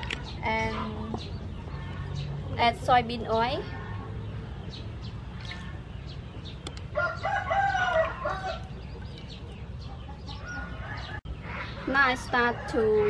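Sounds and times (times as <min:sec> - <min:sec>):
rooster crowing: 0:07.0 - 0:08.6.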